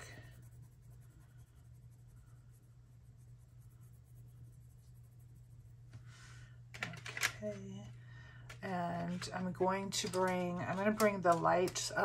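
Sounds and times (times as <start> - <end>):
pencil scratching on paper: 0.0 - 5.8
steady low hum: 0.0 - 12.0.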